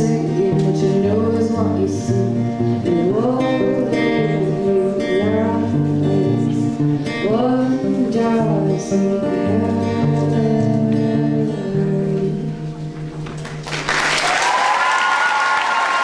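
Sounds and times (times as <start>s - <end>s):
audience applause: 13.4s - 16.0s.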